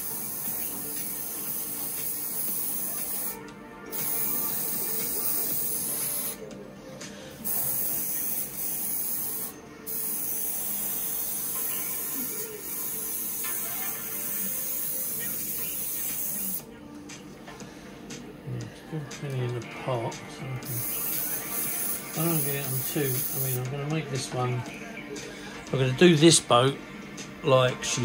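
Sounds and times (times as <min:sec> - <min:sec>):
airbrush spraying hiss: 0:00.0 - 0:06.4, 0:07.4 - 0:16.6, 0:20.6 - 0:23.6.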